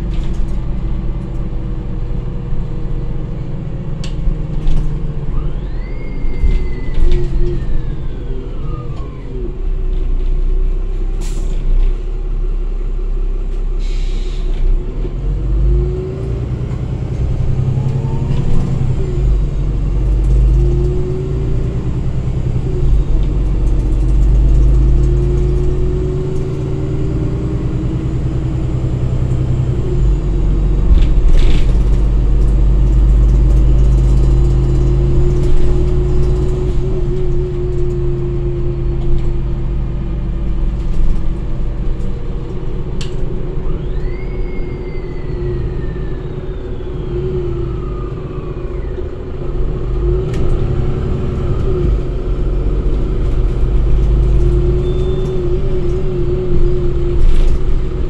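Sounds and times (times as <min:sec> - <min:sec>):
bus diesel engine rumbling: 0:00.0 - 0:58.0
wavering whine: 0:05.1 - 0:09.6, 0:42.2 - 0:58.0
high tone sliding downward: 0:05.2 - 0:09.6, 0:43.2 - 0:58.0.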